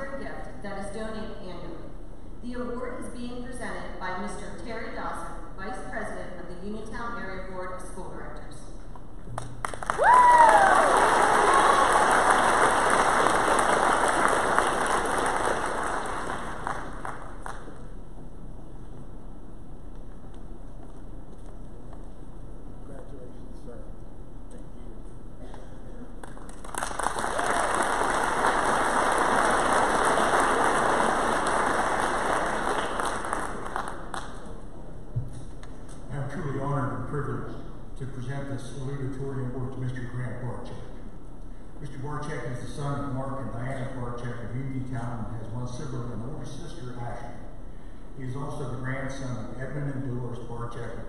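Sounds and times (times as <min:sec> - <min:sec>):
audience applauding: 0:09.4 - 0:17.8, 0:26.2 - 0:34.5.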